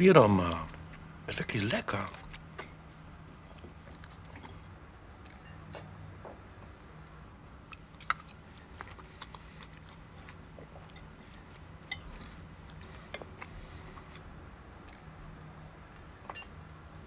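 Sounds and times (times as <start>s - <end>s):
low steady hum: 0.0s - 17.0s
cutlery clinking on plates: 5.4s - 6.0s, 15.9s - 16.6s.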